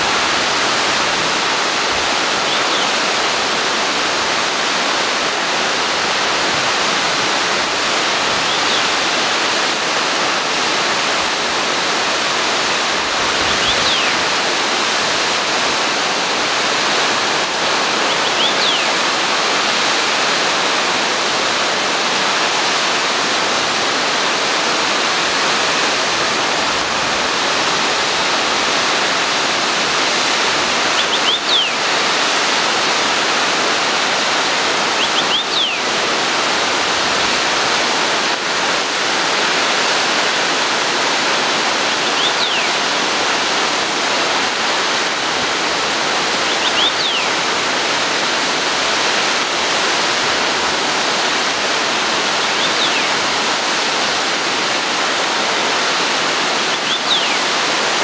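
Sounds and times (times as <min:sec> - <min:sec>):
waterfall roaring: 0:00.0 - 0:58.0.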